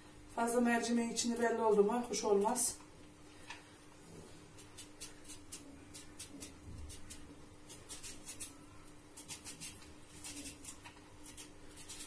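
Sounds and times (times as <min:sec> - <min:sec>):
faint steady hum: 0:00.0 - 0:12.0
knife slicing onion: 0:04.5 - 0:12.0.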